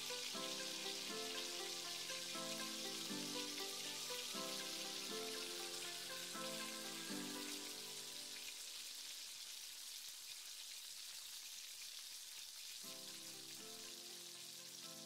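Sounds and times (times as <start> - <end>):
soft background music: 0.0 - 8.7, 12.8 - 15.0
onions sizzling in oil: 0.0 - 15.0.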